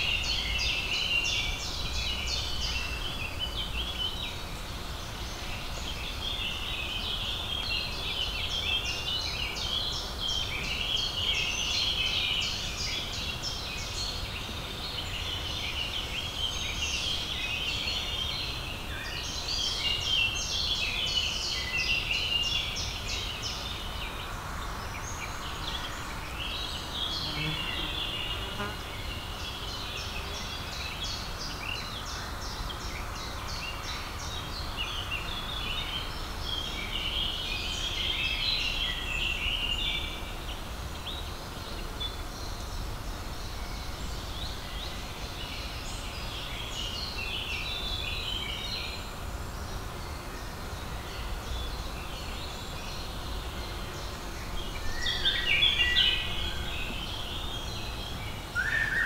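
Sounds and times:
songbirds chirping and trilling: 0:00.0 - 0:59.0.

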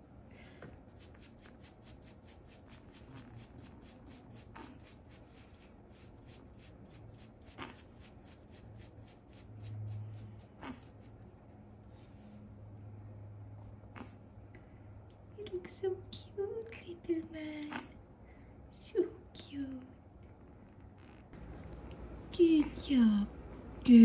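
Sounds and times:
brushes scrubbing wet fur: 0:00.9 - 0:11.2, 0:11.8 - 0:12.2
low hum: 0:19.7 - 0:24.0.

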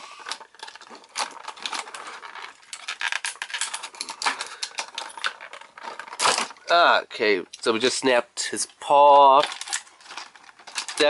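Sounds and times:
plastic packaging crinkling: 0:00.1 - 0:06.7, 0:09.3 - 0:11.0
plastic toy parts clicking: 0:00.2 - 0:06.8, 0:09.4 - 0:11.0.

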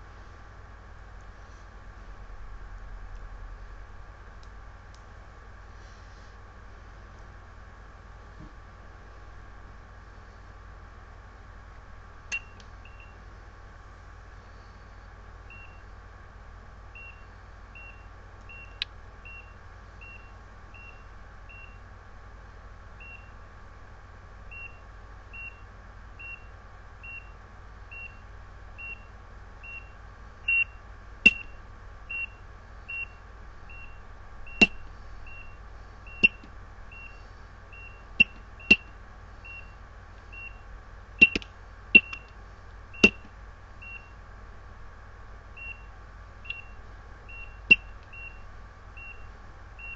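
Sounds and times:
patient monitor beeping: 0:28.8 - 0:40.6, 0:42.0 - 0:42.3, 0:43.0 - 0:44.1, 0:46.5 - 0:48.4, 0:49.0 - 0:49.9
sharp clicks: 0:31.3 - 0:31.5, 0:41.2 - 0:42.4.

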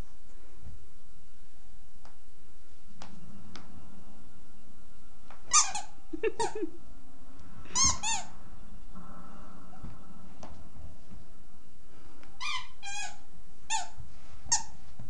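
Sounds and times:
squeaky dog toy squeaking: 0:05.5 - 0:06.6, 0:07.7 - 0:08.3, 0:12.4 - 0:14.8.

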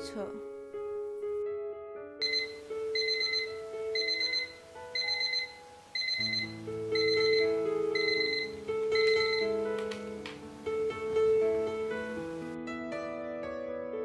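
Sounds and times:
soft background music: 0:00.0 - 0:14.0
alarm clock beeping: 0:02.2 - 0:09.7.

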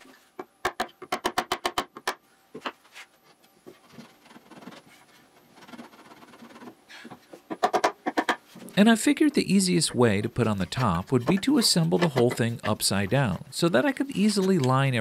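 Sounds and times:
wood rubbing and scraping: 0:03.7 - 0:15.0.

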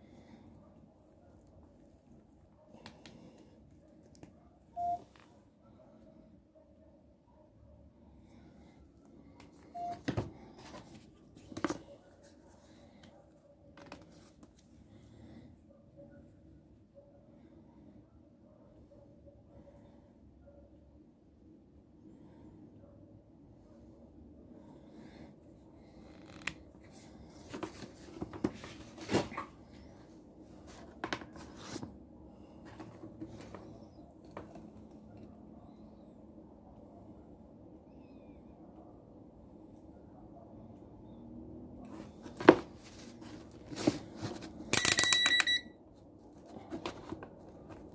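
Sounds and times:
short beep: 0:04.8 - 0:05.0, 0:09.8 - 0:10.0, 0:44.8 - 0:45.8.

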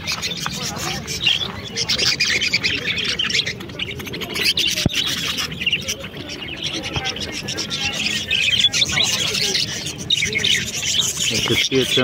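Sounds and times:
budgerigars chattering and chirping: 0:00.0 - 0:12.0.

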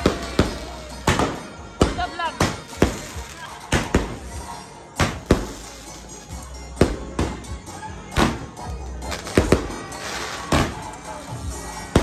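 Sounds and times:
firework cake bangs: 0:00.0 - 0:04.3, 0:05.0 - 0:05.7.

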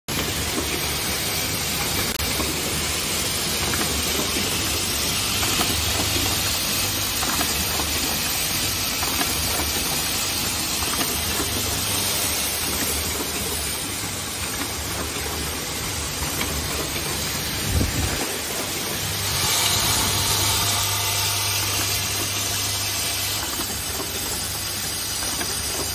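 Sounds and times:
low machine hum: 0:08.9 - 0:25.0.

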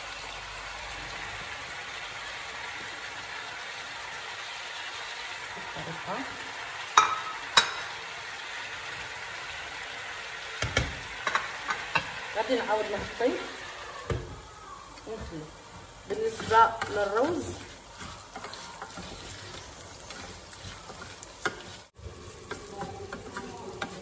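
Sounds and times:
chicken sizzling in oil: 0:00.0 - 0:24.0
stirring clicks: 0:16.3 - 0:24.0.

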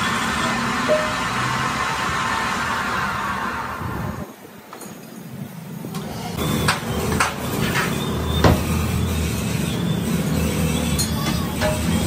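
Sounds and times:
low engine drone: 0:00.0 - 0:04.3.

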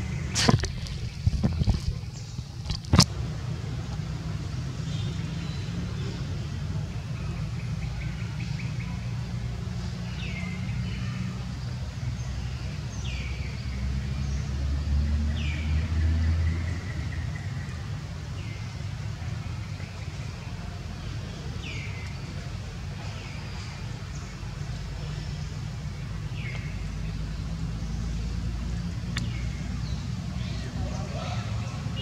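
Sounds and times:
low mechanical rumble: 0:00.0 - 0:14.1.

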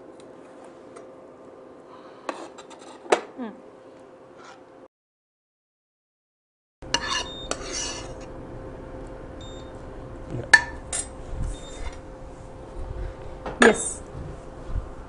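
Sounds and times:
spoon scraping pan: 0:06.9 - 0:08.3.

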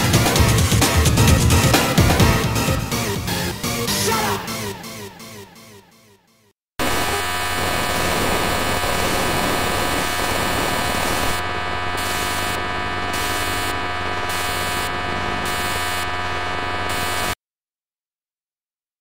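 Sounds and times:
harsh electronic static: 0:06.8 - 0:17.4
held buzzing tones: 0:06.8 - 0:17.4
steady hum: 0:06.8 - 0:17.4.

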